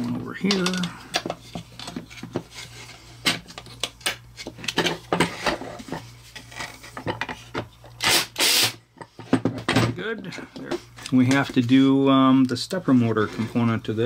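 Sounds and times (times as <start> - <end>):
screws and nuts clicking: 8.0 - 8.8.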